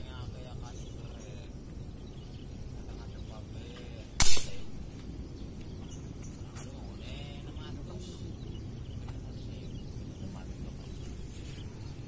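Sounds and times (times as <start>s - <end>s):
air rifle shot: 4.2s - 5.0s.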